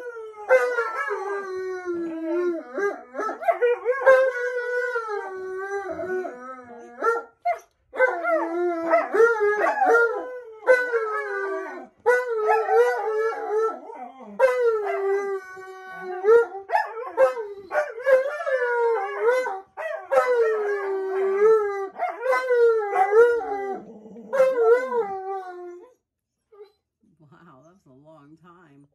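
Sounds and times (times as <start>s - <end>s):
dogs howling: 0.0s - 26.0s.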